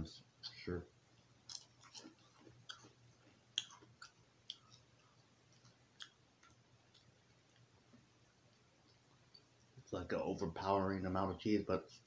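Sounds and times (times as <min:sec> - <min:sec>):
faint low hum: 0:00.0 - 0:12.0
crackers being chewed: 0:01.2 - 0:09.8.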